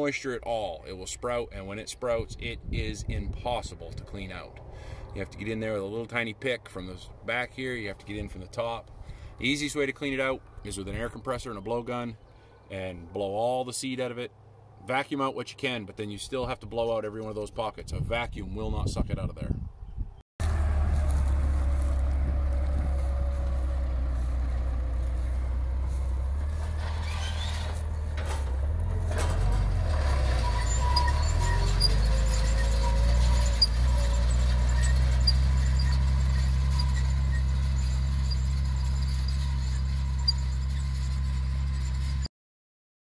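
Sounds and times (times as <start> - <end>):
tractor engine running: 20.4 - 42.3.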